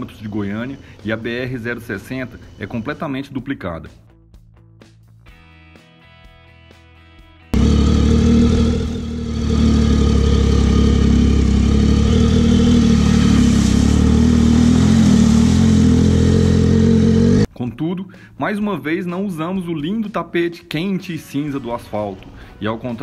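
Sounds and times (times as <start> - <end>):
faint background music: 0.0 - 6.5, 17.5 - 23.0
motorcycle engine running: 7.6 - 17.5.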